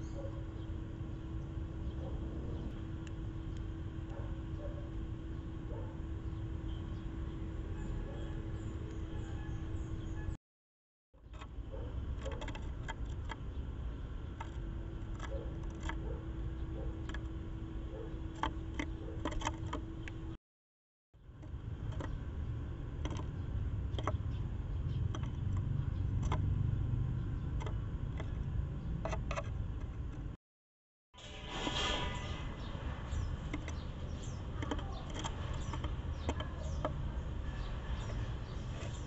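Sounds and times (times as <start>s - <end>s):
steady low rumble: 0.8s - 10.2s
bird pecking on wooden board: 12.1s - 13.4s, 33.4s - 37.1s.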